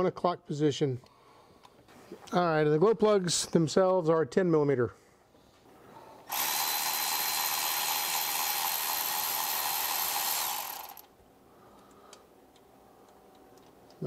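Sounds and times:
cordless ratchet motor running: 6.3 - 11.1.

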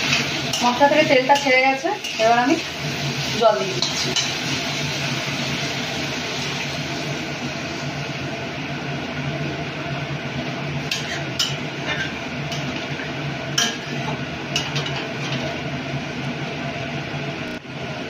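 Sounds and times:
metal spatula scraping a pan: 0.0 - 2.6, 10.8 - 12.8.

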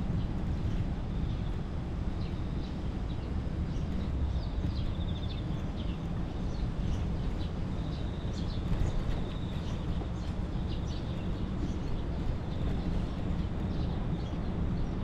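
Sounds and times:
city background rumble: 0.0 - 15.0.

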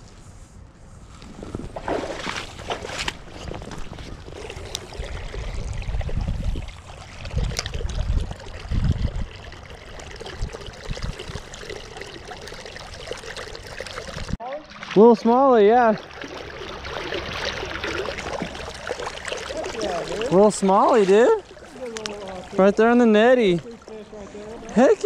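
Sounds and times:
creek water rushing: 11.6 - 25.0.

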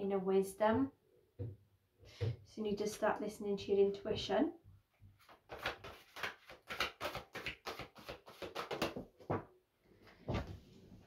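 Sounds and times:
cards being shuffled: 5.2 - 9.0.

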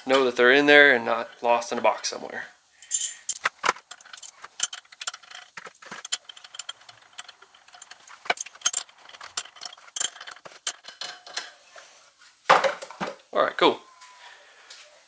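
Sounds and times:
metal parts clinking: 2.8 - 11.6.

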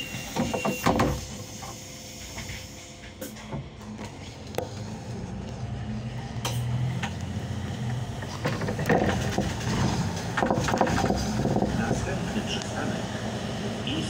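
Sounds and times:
bus engine hum: 0.0 - 14.0
road noise: 0.0 - 14.0
rattles and knocks from bus body: 0.3 - 1.8, 7.9 - 12.2.

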